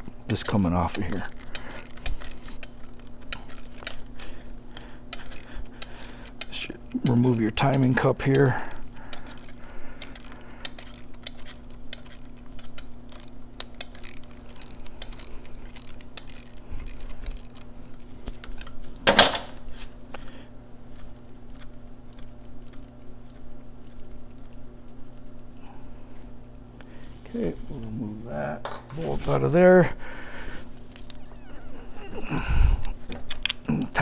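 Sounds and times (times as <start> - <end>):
steady low hum: 0.0 - 34.0
ratchet wrench clicking: 9.2 - 16.5.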